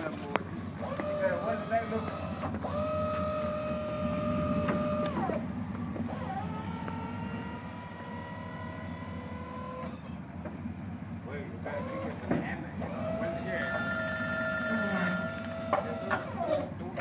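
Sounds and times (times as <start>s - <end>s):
hydraulic pump whining: 0.0s - 17.0s
steady low rumble: 2.3s - 9.4s.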